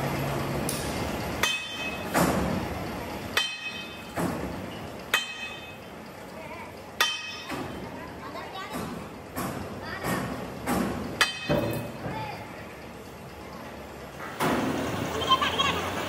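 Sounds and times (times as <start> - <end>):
low engine hum: 0.0 - 16.0
metal clanking on metal: 0.7 - 2.6, 3.3 - 5.9, 7.0 - 8.0, 8.6 - 12.3.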